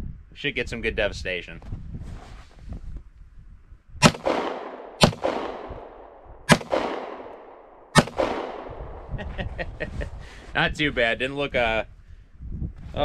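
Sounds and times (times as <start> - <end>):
pistol shots with echo: 4.0 - 8.8.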